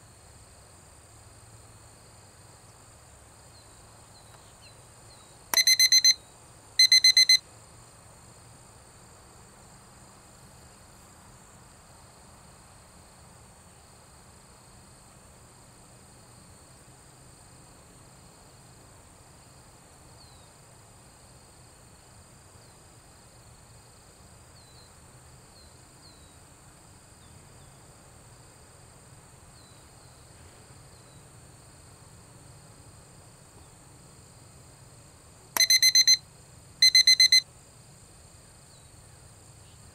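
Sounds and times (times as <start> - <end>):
high insect drone: 0.0 - 39.9
high electronic beeps: 5.6 - 6.2, 6.8 - 7.4, 35.6 - 36.2, 36.8 - 37.4.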